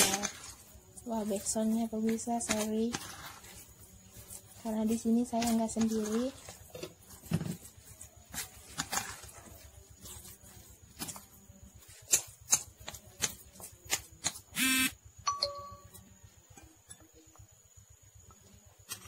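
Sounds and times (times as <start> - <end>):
loud buzzing tone: 14.6 - 15.0
brief ringing tone: 14.6 - 16.0.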